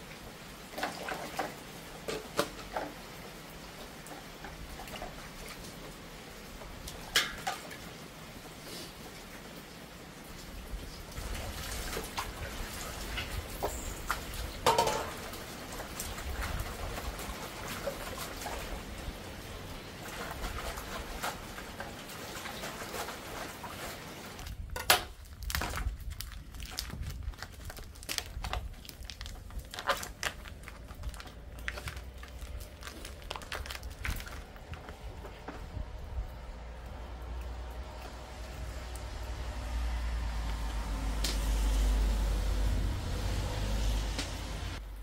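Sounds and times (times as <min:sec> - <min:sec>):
water splashing in a basin: 0:00.6 - 0:07.9, 0:10.3 - 0:24.6
steady watery hiss: 0:08.3 - 0:11.2
plastic packaging crinkling: 0:22.5 - 0:35.4.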